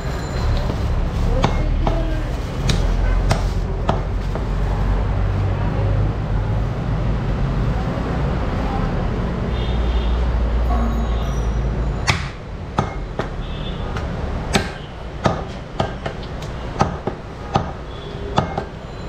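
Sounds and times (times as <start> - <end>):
cleaver chopping on wooden block: 14.0 - 16.2, 16.8 - 17.8, 18.4 - 18.8.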